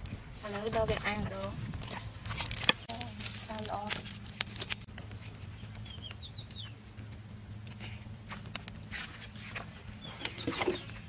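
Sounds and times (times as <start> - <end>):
high falling bird chirps: 4.7 - 6.8.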